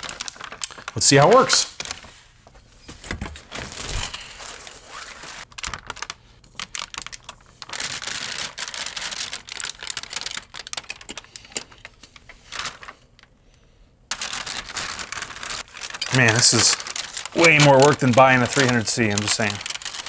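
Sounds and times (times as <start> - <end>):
plastic crinkling and rustling: 0.0 - 13.3, 14.1 - 20.0.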